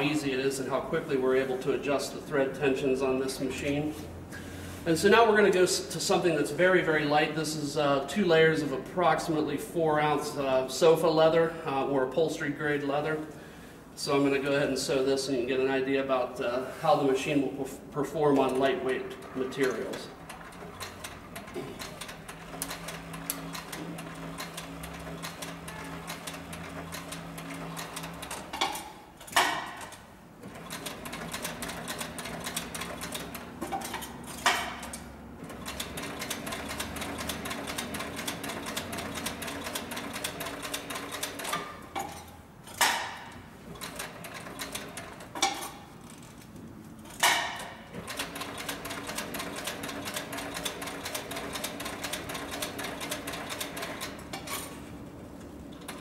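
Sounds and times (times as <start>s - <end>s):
sewing machine stitching clatter: 18.4s - 42.9s, 43.7s - 46.4s, 47.1s - 54.9s.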